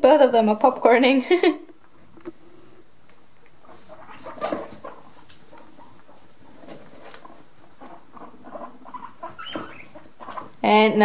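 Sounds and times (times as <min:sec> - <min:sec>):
guinea pigs squeaking: 0:03.3 - 0:11.0
rustle: 0:03.4 - 0:10.6.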